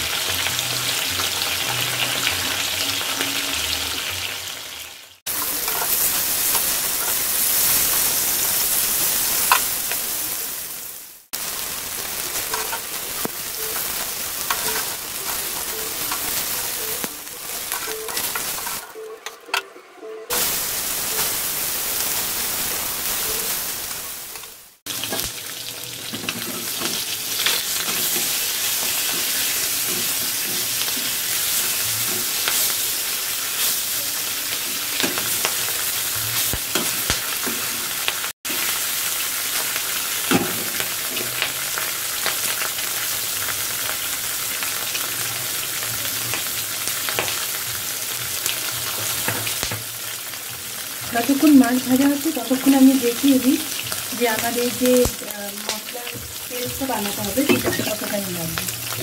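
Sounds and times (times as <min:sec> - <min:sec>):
fish sizzling in oil: 0:00.0 - 0:19.1, 0:20.3 - 0:59.0
metal utensil scraping: 0:05.3 - 0:08.0, 0:13.6 - 0:19.7.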